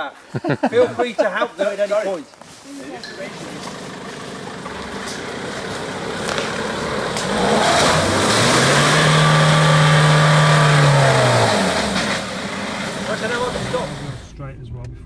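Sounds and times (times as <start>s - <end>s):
diesel engine revving: 3.1s - 15.0s.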